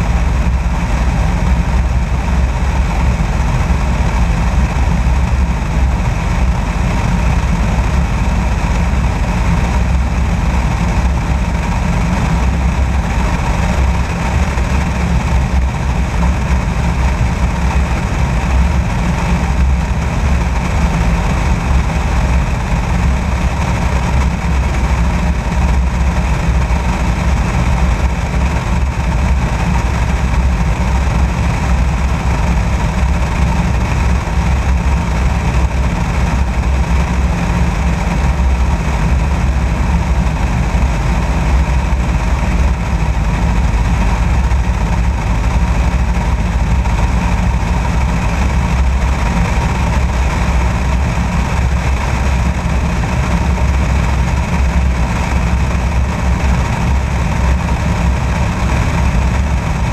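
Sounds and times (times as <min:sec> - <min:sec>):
light aircraft engine drone: 0:00.0 - 0:59.9.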